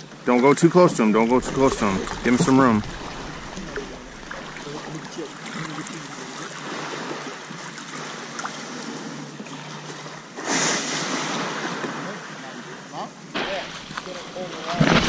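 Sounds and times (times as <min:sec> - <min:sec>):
rushing water: 0:00.9 - 0:09.7, 0:13.4 - 0:15.0
small waves washing on shore: 0:01.0 - 0:15.0
water lapping around kayak hull: 0:01.0 - 0:15.0.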